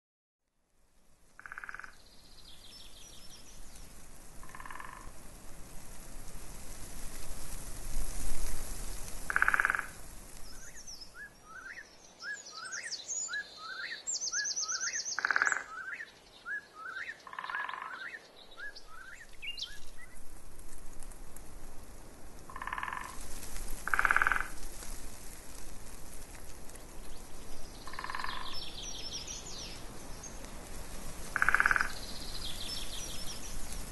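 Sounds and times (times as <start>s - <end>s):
frogs croaking: 1.4s - 2.0s, 4.4s - 5.2s, 9.3s - 10.0s, 14.8s - 16.1s, 16.9s - 18.2s, 22.5s - 23.2s, 23.8s - 24.6s, 27.8s - 28.7s, 31.3s - 32.1s
bird chirping: 10.5s - 20.2s, 26.9s - 30.5s, 31.4s - 33.7s.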